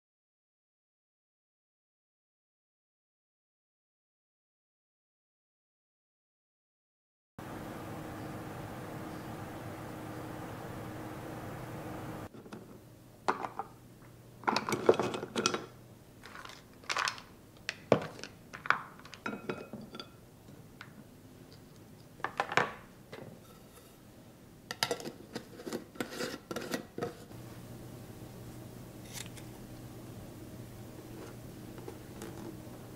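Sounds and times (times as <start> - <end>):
cookies rattling in a jar: 14.5 - 19.3.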